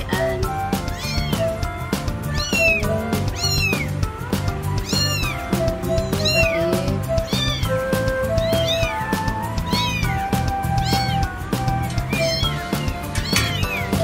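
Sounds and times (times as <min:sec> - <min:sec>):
cat meowing: 0:00.0 - 0:01.6, 0:02.3 - 0:03.9, 0:04.8 - 0:07.7, 0:08.4 - 0:11.3, 0:12.0 - 0:14.0
background music with steady beat: 0:00.0 - 0:14.0.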